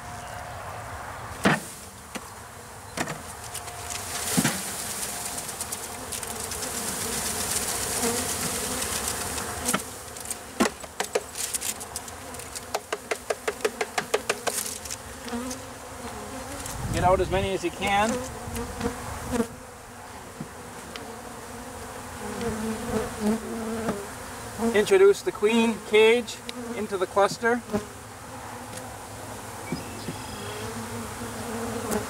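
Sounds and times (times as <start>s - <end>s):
bees buzzing: 0.0s - 32.0s
wooden box knocking on hive: 10.6s - 11.3s, 12.7s - 14.6s.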